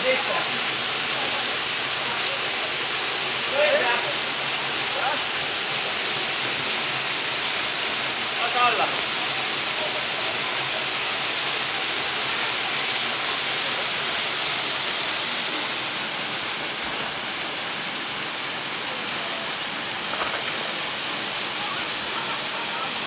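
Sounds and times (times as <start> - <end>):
waterfall rushing: 0.0 - 23.0.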